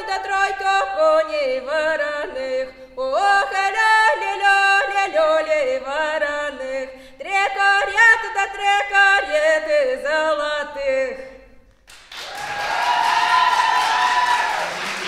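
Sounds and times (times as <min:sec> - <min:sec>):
woman singing unaccompanied: 0:00.0 - 0:11.6.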